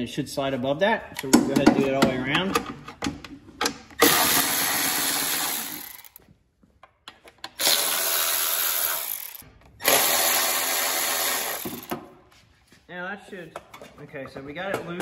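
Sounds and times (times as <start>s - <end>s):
cordless electric ratchet: 4.0s - 6.2s, 7.6s - 12.0s.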